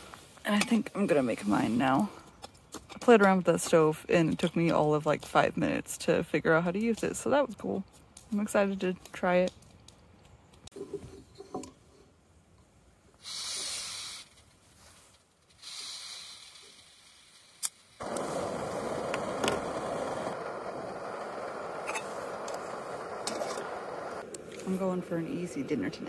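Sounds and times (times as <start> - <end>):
gas hissing from valve: 13.2 - 14.5, 15.5 - 25.6
burner flame rushing: 15.6 - 26.0.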